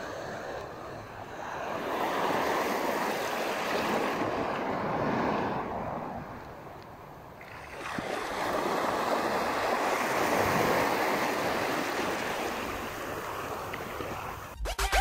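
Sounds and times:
small surf washing in: 7.4s - 14.5s.

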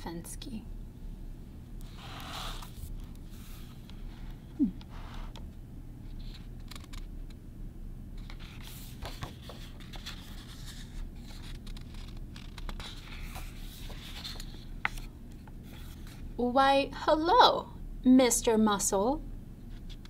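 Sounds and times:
low steady hum: 0.0s - 20.0s
book pages turning: 1.8s - 5.4s, 6.1s - 7.4s, 8.2s - 16.3s.

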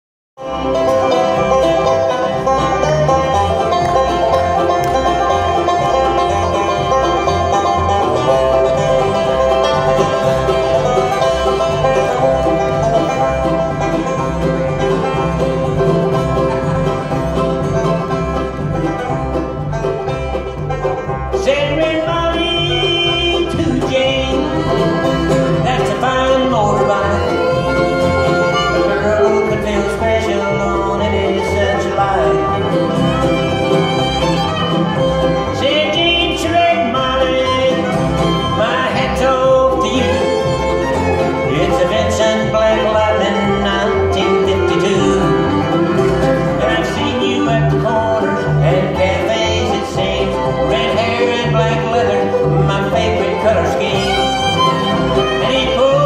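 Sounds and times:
bluegrass band playing: 0.4s - 56.0s
upright bass beat: 0.4s - 56.0s.

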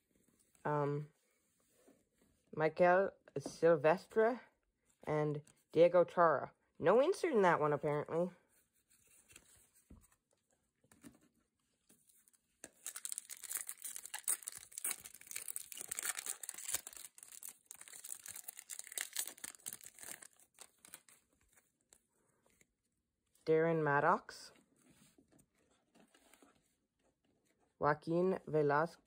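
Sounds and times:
foil wrapper crinkling: 12.6s - 21.1s.

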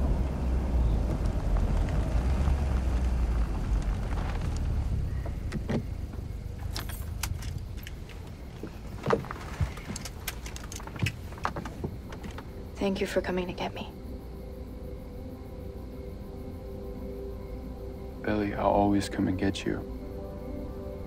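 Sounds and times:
car engine and road rumble: 0.0s - 21.0s
light clicks and knocks: 5.2s - 12.5s.

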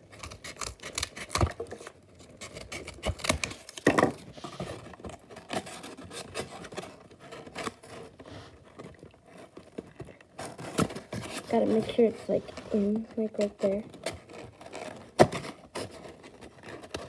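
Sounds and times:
cardboard rubbing: 0.0s - 17.0s
scissors snipping cardboard: 0.1s - 4.2s, 13.9s - 17.0s.

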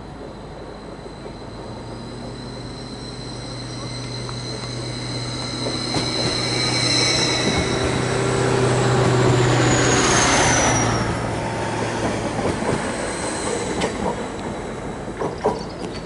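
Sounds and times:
train passing by: 0.0s - 16.0s.

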